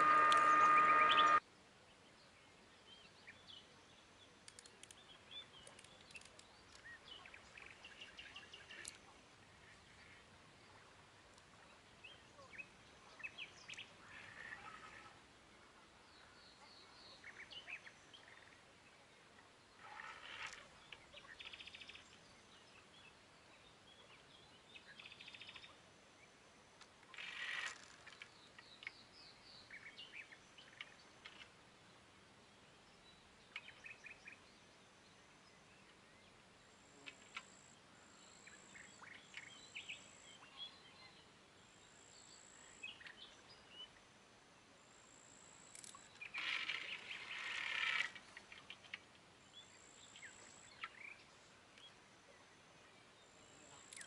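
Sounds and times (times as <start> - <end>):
birds chirping: 0.0 - 1.4
high thin bird whistle: 0.0 - 1.4.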